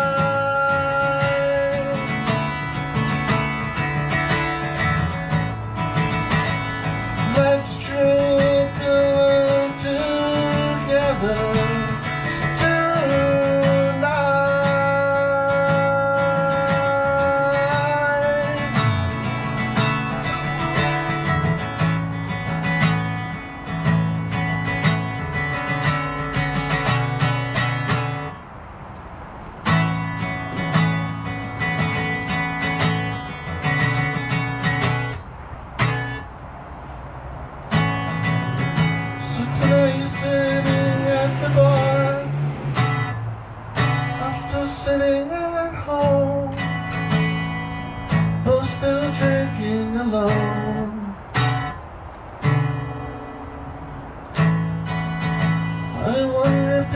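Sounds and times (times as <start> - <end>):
bending melody line: 0.0 - 28.6
acoustic guitar strumming: 0.0 - 56.9.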